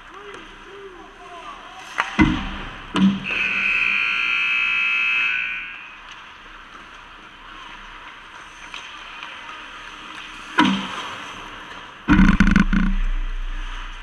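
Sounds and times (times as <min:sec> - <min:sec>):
heavy thud: 0:12.1 - 0:13.2
sharp knocks: 0:12.1 - 0:13.3.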